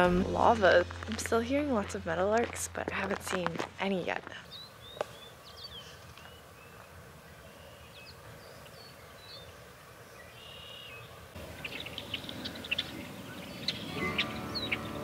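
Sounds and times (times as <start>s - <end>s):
open-air hiss: 0.0s - 15.0s
birdsong of whistled notes: 4.5s - 15.0s.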